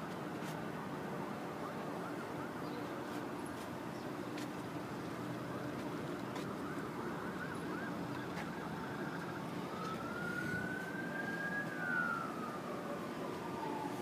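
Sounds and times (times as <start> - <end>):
outdoor background noise: 0.0 - 14.0
emergency vehicle siren: 4.8 - 14.0.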